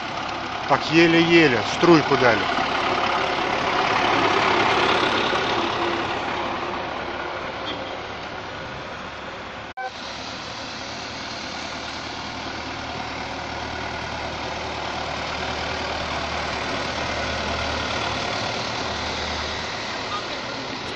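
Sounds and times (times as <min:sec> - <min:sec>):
truck engine running: 0:00.0 - 0:20.9
water spraying hiss: 0:09.9 - 0:13.1.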